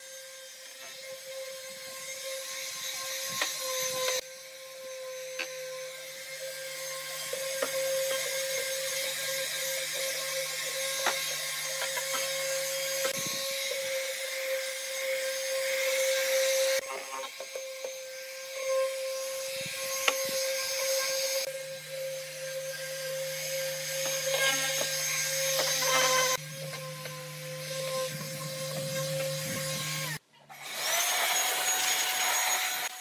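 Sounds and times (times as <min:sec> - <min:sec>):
electric sander whining: 0:00.0 - 0:33.0
sander pad rubbing wood: 0:23.8 - 0:30.2.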